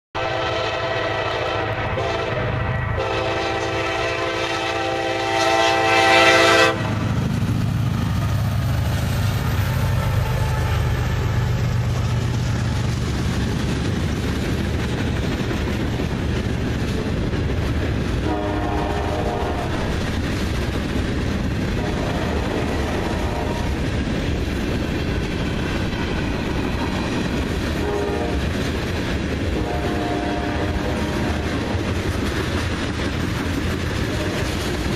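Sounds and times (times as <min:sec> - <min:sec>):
locomotive horn blasts: 0:00.2 - 0:07.0, 0:18.2 - 0:19.9, 0:21.8 - 0:23.8, 0:27.8 - 0:28.5, 0:29.5 - 0:31.7, 0:34.0 - 0:34.9
freight train rumbling past: 0:00.2 - 0:34.9.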